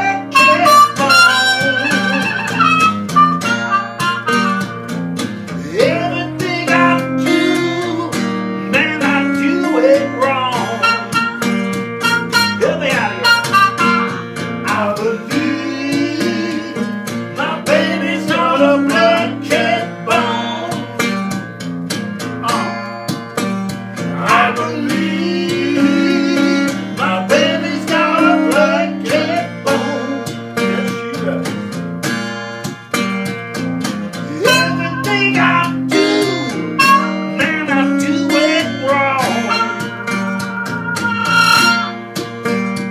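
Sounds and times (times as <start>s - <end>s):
person singing: 0.0s - 2.8s, 5.6s - 11.4s, 12.3s - 21.0s, 24.0s - 31.6s, 34.2s - 41.9s
trumpet: 0.0s - 4.7s, 10.7s - 14.3s, 34.4s - 35.4s, 36.8s - 37.4s, 39.1s - 42.1s
acoustic guitar bass figure: 0.0s - 42.9s.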